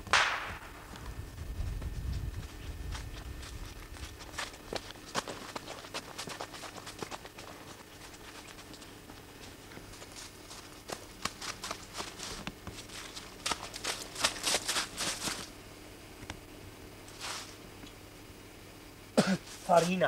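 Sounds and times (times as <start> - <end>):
footsteps crunching in snow: 0.6 - 15.6, 17.1 - 17.6, 19.4 - 20.0.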